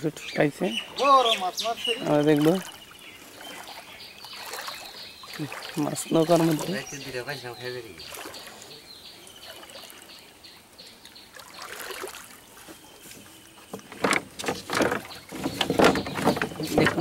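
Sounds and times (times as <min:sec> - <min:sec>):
water lapping in a boat: 0:00.8 - 0:17.0
hand splashing water: 0:02.2 - 0:06.9, 0:11.3 - 0:12.4.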